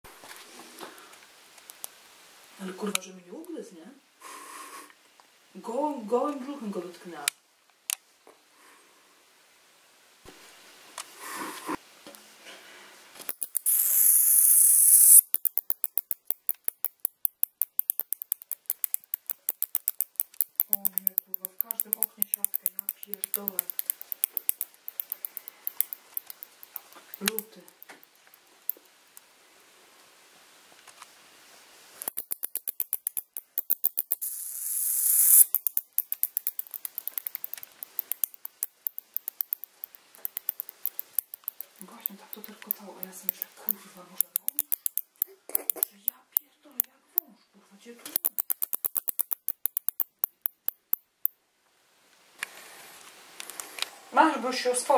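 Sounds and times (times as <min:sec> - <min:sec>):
bat squeaking: 0:13.4 - 0:15.9, 0:17.8 - 0:28.4, 0:32.1 - 0:46.1
bat hissing: 0:13.5 - 0:15.2, 0:32.0 - 0:46.0.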